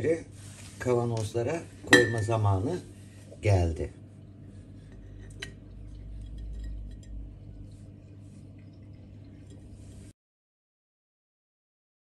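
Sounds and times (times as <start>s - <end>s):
low steady hum: 0.0s - 10.2s
utensil clinking against glass: 1.9s - 2.3s.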